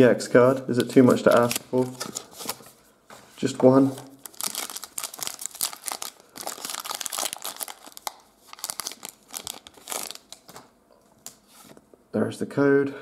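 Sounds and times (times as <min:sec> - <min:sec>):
foil wrapper crinkling: 0:00.8 - 0:02.7, 0:04.1 - 0:10.7.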